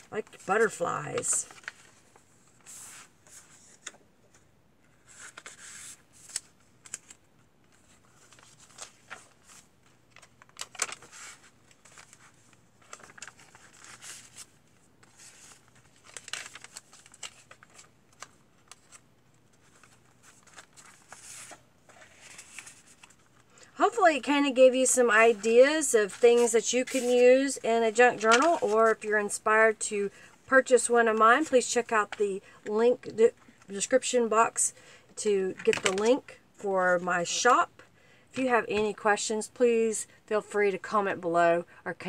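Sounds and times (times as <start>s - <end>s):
paper pages turning: 0.0s - 23.6s, 24.6s - 29.4s, 35.6s - 36.2s
page flapping: 7.8s - 19.0s.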